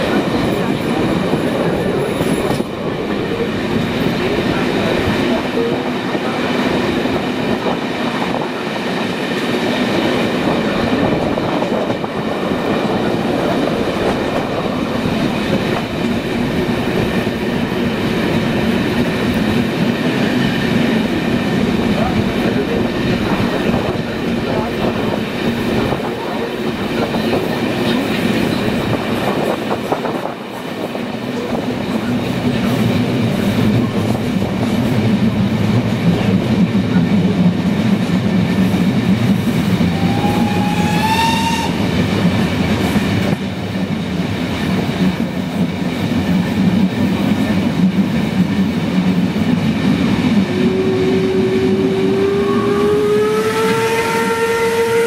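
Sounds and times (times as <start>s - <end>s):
locomotive whistle rising: 39.8s - 42.0s, 50.5s - 55.0s.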